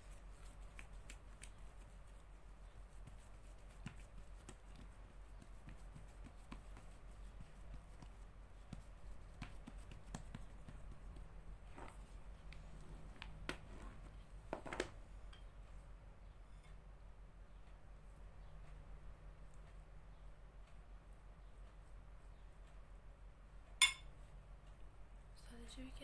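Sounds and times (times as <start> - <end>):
hands patting dough on tray: 0.0 - 15.0
low steady hum: 0.0 - 26.0.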